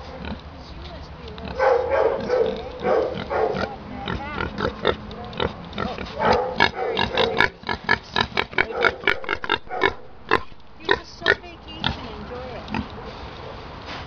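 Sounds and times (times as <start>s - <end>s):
pig chewing crunchy feed: 0.0s - 13.3s
pig grunting: 2.2s - 12.0s.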